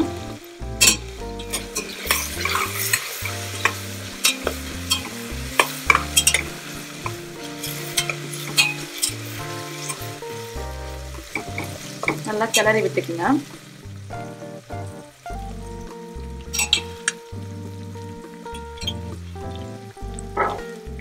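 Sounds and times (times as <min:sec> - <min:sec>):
onions sizzling in hot oil: 0:00.0 - 0:21.0
metal spoon scraping pot: 0:00.8 - 0:10.0.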